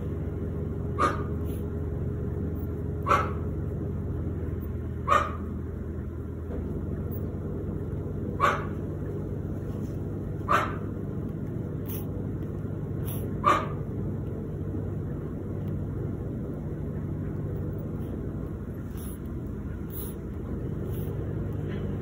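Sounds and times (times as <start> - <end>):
steady low hum: 0.0 - 22.0
dog yipping: 1.0 - 1.4, 3.0 - 3.4, 5.1 - 5.5, 8.4 - 8.8, 10.5 - 10.9, 13.4 - 13.8.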